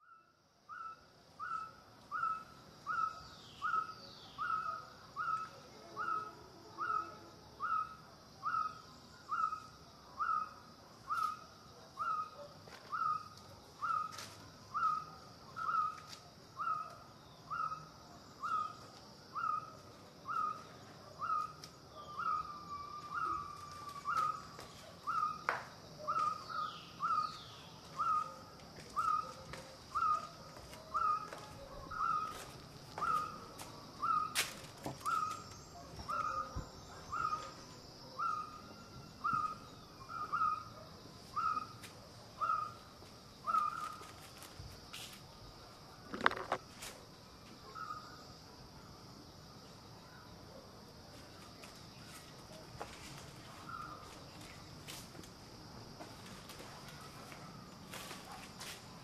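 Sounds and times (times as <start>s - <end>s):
bird call: 20.3s - 41.8s, 43.4s - 44.0s.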